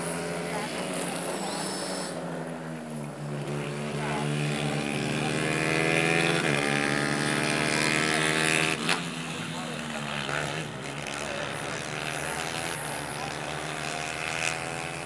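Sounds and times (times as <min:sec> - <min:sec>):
propeller plane flying overhead: 0:07.8 - 0:15.0.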